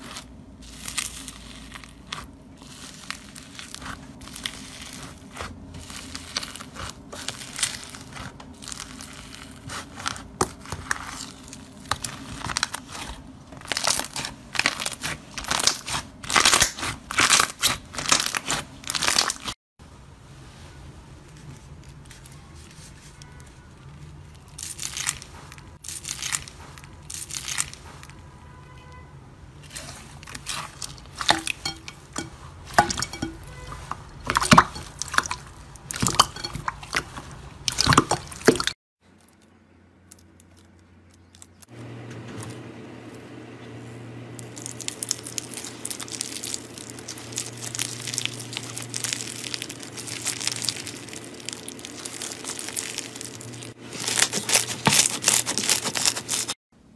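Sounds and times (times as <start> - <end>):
hands squishing slime: 0.0 - 19.5, 29.6 - 38.7, 44.4 - 56.6
foam beads crackling in slime: 0.0 - 19.6, 21.5 - 28.2, 29.6 - 41.7, 44.4 - 56.6.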